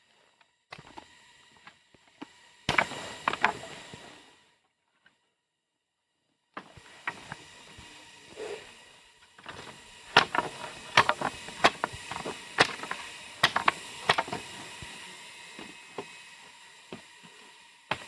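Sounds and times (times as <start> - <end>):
blade chopping dry branches: 2.7 - 3.7, 9.4 - 14.8.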